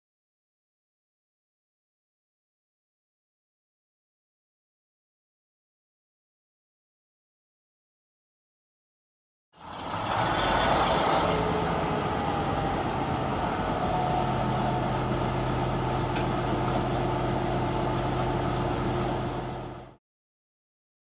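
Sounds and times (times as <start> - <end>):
vehicle engine running: 9.6 - 20.0
brief hiss: 15.4 - 15.7.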